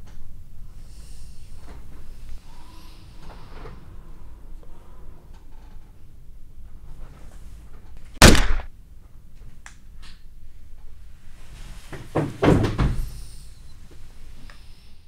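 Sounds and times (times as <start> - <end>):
loud sharp thud: 8.2 - 8.7
heavy knocks and thuds: 12.0 - 13.1.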